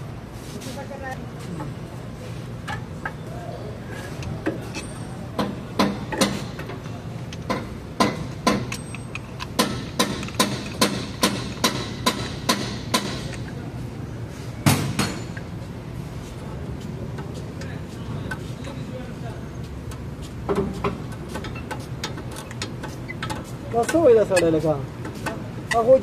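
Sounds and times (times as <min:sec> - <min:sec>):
loud metallic knock: 0:07.5 - 0:08.7, 0:09.6 - 0:13.3, 0:14.6 - 0:15.3
metallic clicks of brake tool: 0:08.5 - 0:09.5.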